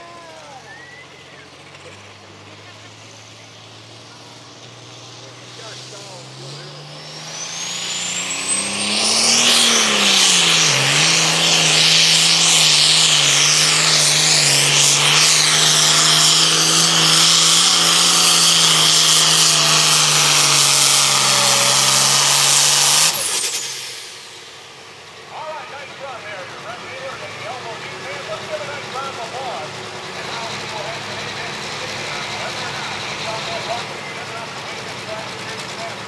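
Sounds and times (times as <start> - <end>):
diesel tractor engine at full throttle: 0.0 - 36.0
turbo whine: 2.8 - 25.1.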